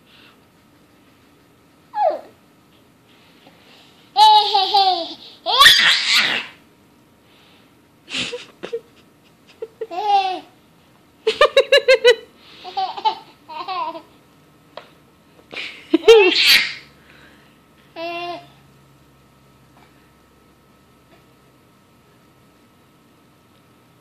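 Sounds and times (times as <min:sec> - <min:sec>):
high-pitched childlike laughter: 0:15.9 - 0:16.8.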